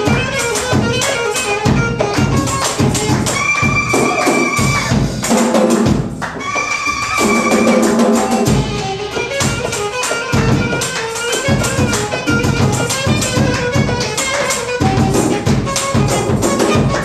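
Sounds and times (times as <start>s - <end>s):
jazz group playing: 0.0s - 17.0s.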